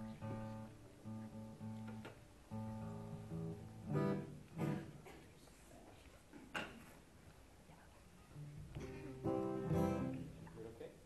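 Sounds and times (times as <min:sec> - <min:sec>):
guitar notes: 0:00.0 - 0:05.0, 0:08.4 - 0:10.5
strummed guitar chords: 0:00.0 - 0:05.0, 0:08.8 - 0:10.4.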